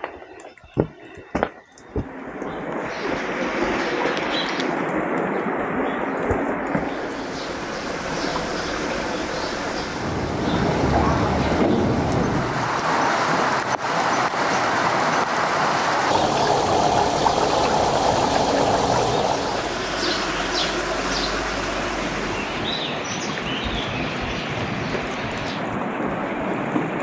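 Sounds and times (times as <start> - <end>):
running water rushing: 6.5 - 23.5
birds chirping: 6.7 - 24.1.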